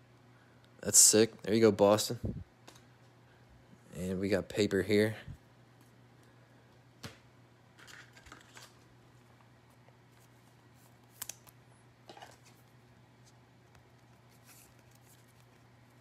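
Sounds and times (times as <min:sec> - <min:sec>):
steady low hum: 0:00.0 - 0:16.0
faint clicks and rustles: 0:07.8 - 0:16.0.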